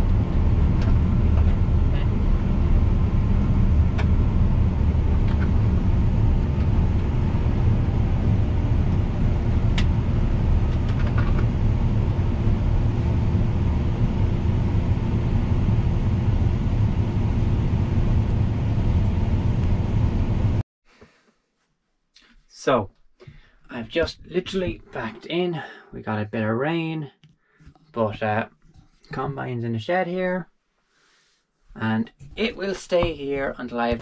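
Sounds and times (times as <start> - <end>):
combine harvester engine rumble: 0.0 - 20.6.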